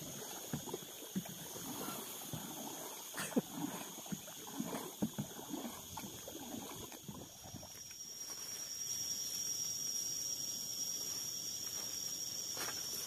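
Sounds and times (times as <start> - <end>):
water splashing against canoe: 0.0 - 8.0
paddle strokes: 0.0 - 8.4
high-pitched insect drone: 3.8 - 13.0.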